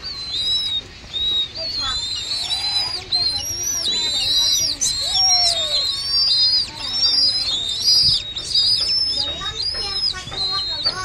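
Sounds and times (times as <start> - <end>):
chicks whistled begging calls: 0.0 - 11.0.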